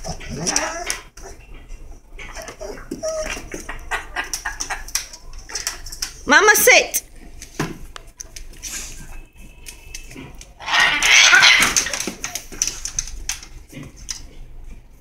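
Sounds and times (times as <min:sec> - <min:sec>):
parrot squawk: 0:10.6 - 0:12.0.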